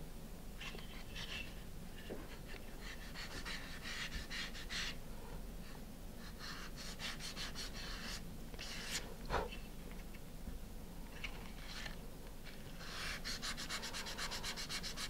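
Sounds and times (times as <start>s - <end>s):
sandpaper rubbing wood: 12.8s - 15.0s.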